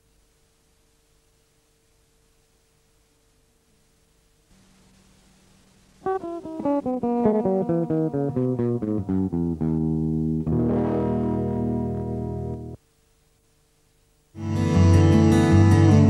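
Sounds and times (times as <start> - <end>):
plucked guitar-like instrument: 6.0 - 12.8, 14.4 - 16.0.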